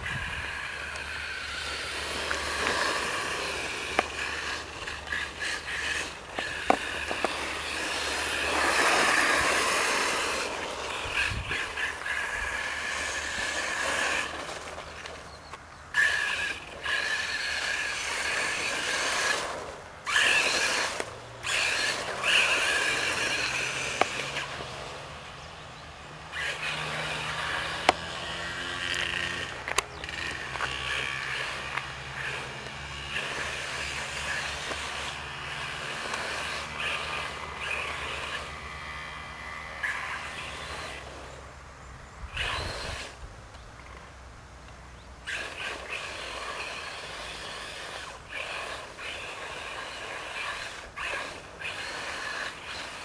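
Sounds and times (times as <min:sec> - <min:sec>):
rc car motor whining: 0:00.0 - 0:44.1, 0:45.0 - 0:53.0
sharp clicks: 0:28.9 - 0:33.5.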